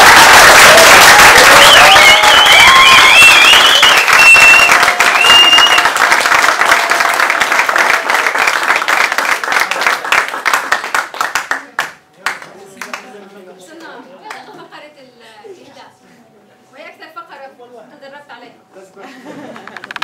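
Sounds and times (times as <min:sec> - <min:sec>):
high wavering cheering: 0:00.0 - 0:06.7
audience applauding: 0:00.0 - 0:13.0.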